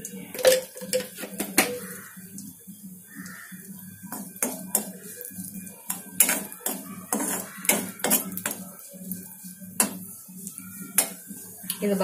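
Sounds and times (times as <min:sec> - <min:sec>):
raisins frying in oil: 0:00.0 - 0:12.0
metal spatula scraping a pan: 0:04.1 - 0:11.5.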